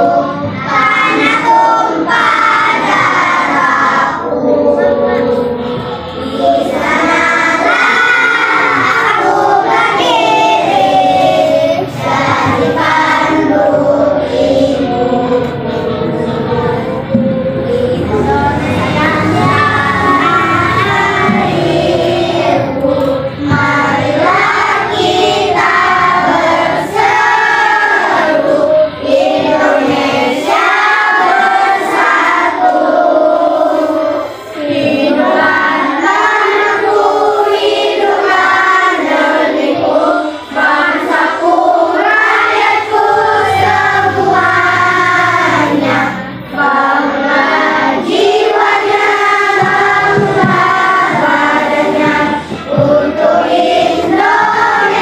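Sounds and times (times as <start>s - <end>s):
children singing together: 0.0s - 55.0s.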